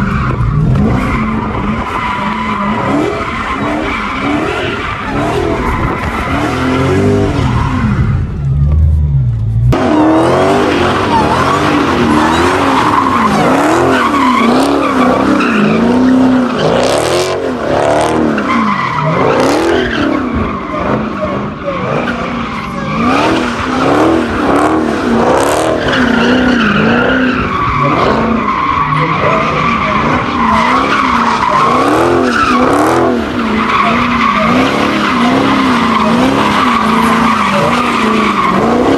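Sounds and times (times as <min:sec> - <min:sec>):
car engine revving: 0:00.0 - 0:38.9
tyres squealing: 0:09.9 - 0:38.9.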